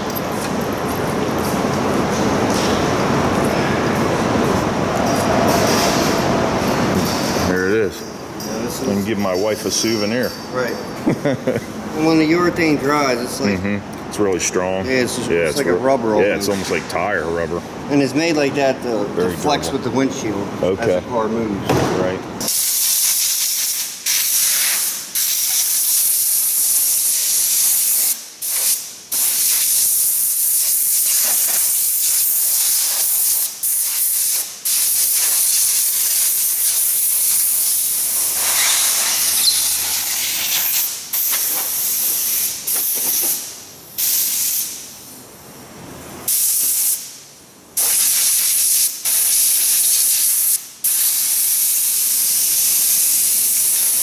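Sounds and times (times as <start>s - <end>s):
hissing spray bursts: 22.4s - 45.2s, 46.3s - 47.2s, 47.8s - 54.0s.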